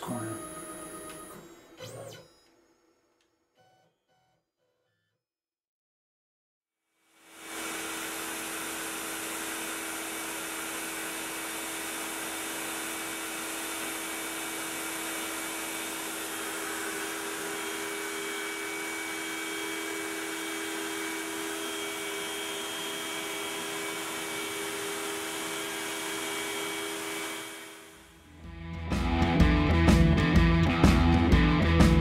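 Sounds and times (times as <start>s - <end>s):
router whine: 0.0s - 2.6s, 7.2s - 28.3s
dust collector air rush: 7.3s - 28.2s.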